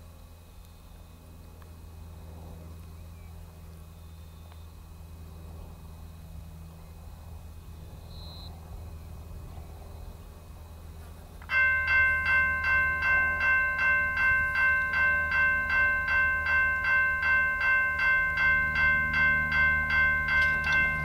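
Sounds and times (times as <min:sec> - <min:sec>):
level crossing warning bell: 0:11.5 - 0:21.0.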